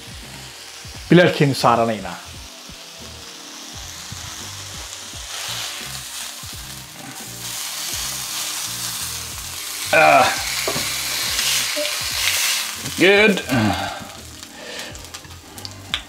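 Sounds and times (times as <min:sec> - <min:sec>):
chicken sizzling in grill pan: 0:00.0 - 0:16.0
soft background music: 0:00.0 - 0:16.0.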